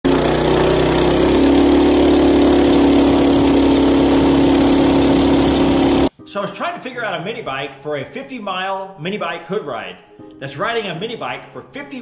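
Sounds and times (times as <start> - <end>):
minibike engine running hard: 0.0 - 6.1.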